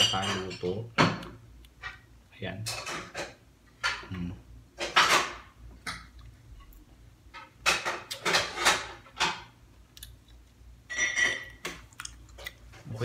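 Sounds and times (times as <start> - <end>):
man chewing: 11.7 - 12.8.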